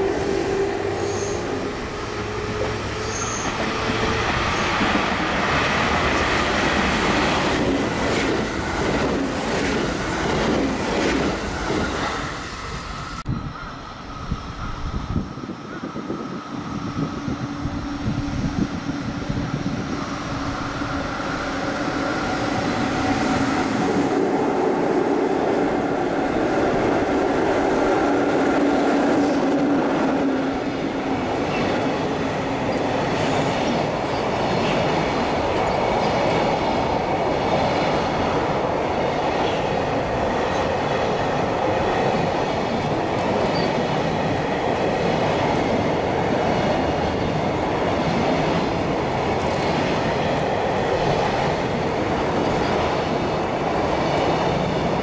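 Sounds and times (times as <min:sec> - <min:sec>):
electric locomotive hum: 0:00.0 - 0:55.0
rumbling train wheels: 0:00.0 - 0:55.0
clickety-clack over rail joints: 0:03.4 - 0:12.1, 0:28.2 - 0:38.3, 0:38.9 - 0:55.0.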